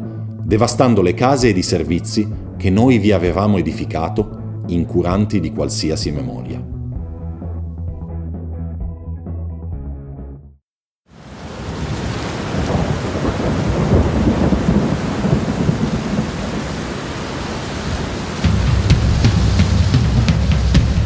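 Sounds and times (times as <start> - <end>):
rushing floodwater: 11.2 - 20.4
drum-kit music: 18.4 - 21.0.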